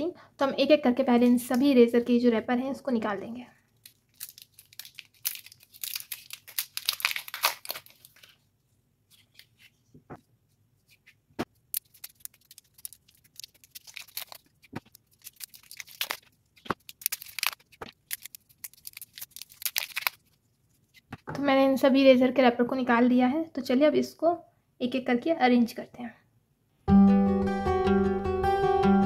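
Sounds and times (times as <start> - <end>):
paper wrappers tearing: 3.7 - 8.4, 9.1 - 9.7, 10.9 - 21.1.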